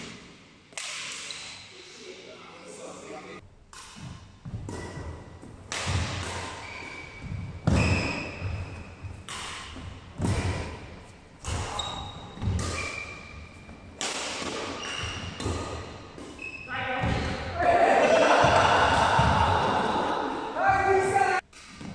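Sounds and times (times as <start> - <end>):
rackets hitting shuttlecock: 0.0 - 1.6, 3.7 - 17.4
shoes squeaking on wooden floor: 6.6 - 9.3, 11.0 - 16.8.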